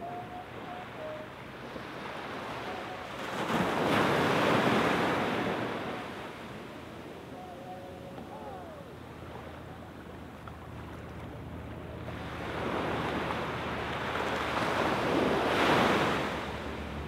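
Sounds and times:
small waves washing onto sand: 0:01.4 - 0:07.2, 0:10.4 - 0:17.0.

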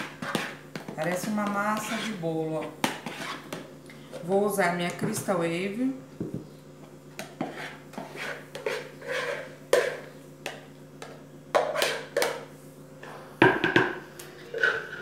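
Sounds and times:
spatula scraping plastic bowl: 0:00.0 - 0:03.7, 0:07.2 - 0:10.2, 0:14.4 - 0:15.0.

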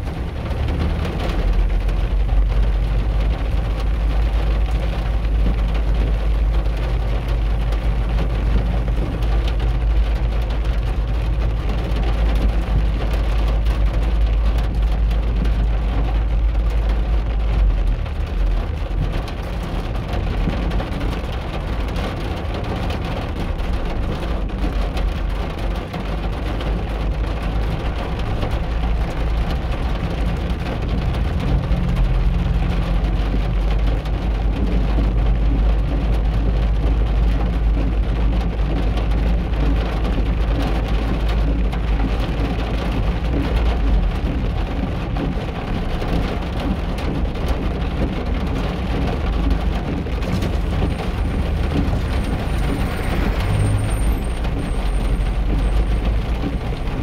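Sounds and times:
steady rain: 0:00.0 - 0:57.0
traffic on wet road: 0:00.0 - 0:57.0
low rumble: 0:41.0 - 0:57.0.

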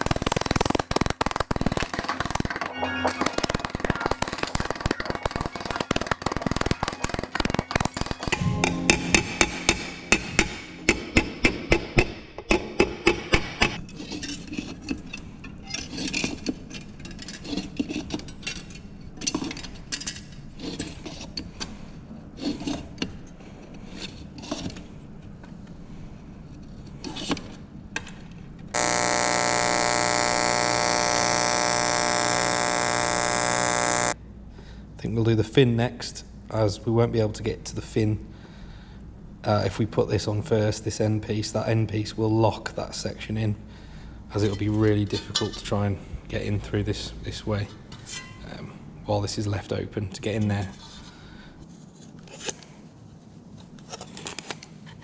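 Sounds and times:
hand tools tapping metal: 0:00.0 - 0:08.4
power hammer buzzing: 0:00.0 - 0:08.4, 0:28.8 - 0:34.2.

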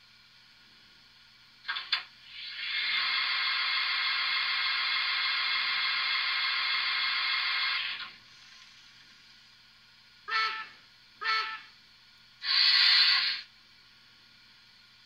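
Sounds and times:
hiss of escaping steam: 0:02.2 - 0:09.4, 0:12.4 - 0:13.5.

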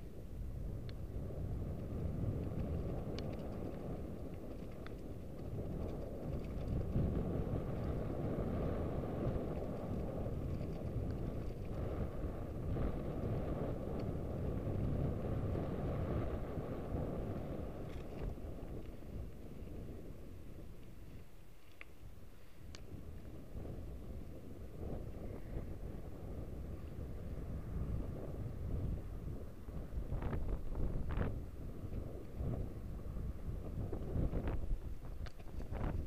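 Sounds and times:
wind buffeting microphone: 0:00.0 - 0:36.0
faint clicks: 0:01.8 - 0:07.0, 0:20.8 - 0:22.0, 0:22.6 - 0:22.9, 0:35.1 - 0:36.0.

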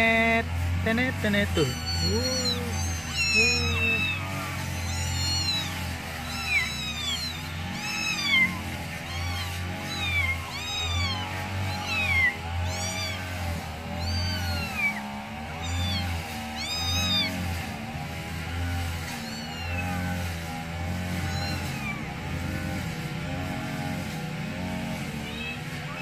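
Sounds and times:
kittens mewing: 0:00.7 - 0:26.0.

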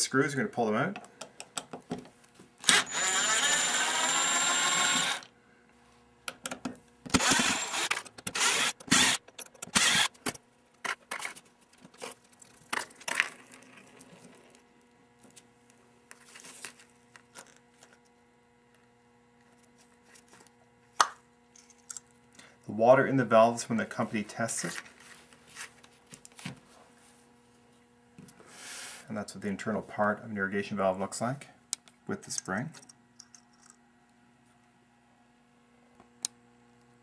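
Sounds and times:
power screwdriver whirring: 0:02.6 - 0:05.3, 0:07.1 - 0:10.2.

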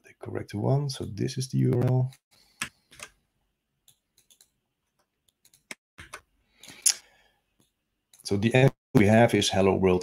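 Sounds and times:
computer mouse clicks: 0:03.9 - 0:04.6, 0:05.2 - 0:06.3.

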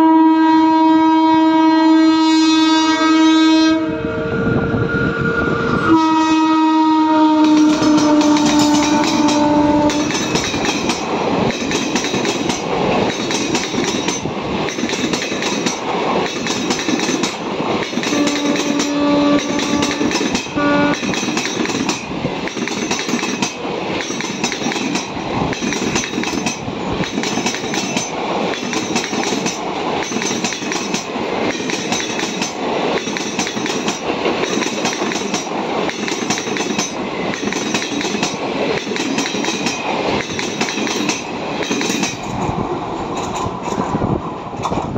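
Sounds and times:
train horn: 0:00.0 - 0:10.4, 0:18.0 - 0:21.3
train rushing roar: 0:00.0 - 0:44.9
train wheels clattering: 0:07.4 - 0:44.9.

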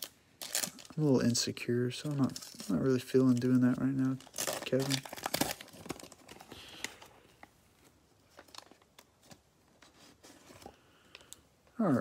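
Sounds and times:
plastic wrapper crinkling: 0:00.0 - 0:09.4.

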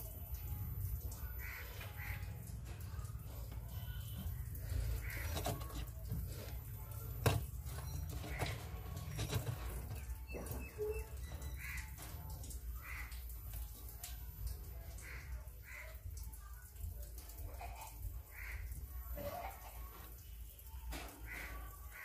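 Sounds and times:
crows cawing: 0:01.4 - 0:02.3, 0:05.0 - 0:05.3, 0:11.5 - 0:13.2, 0:18.3 - 0:18.8.

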